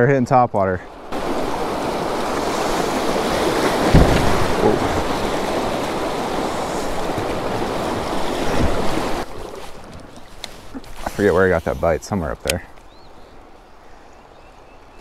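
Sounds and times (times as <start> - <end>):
fast water rushing over rocks: 1.1 - 12.6
low thump: 3.8 - 5.2.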